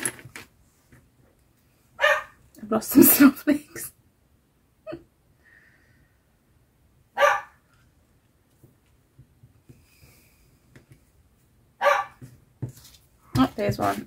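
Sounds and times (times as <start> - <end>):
dog barking: 2.0 - 2.4, 7.2 - 7.6, 11.8 - 12.2.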